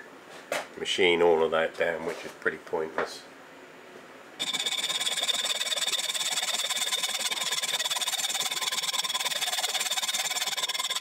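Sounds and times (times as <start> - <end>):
hacksaw cutting metal rod: 4.4 - 11.0.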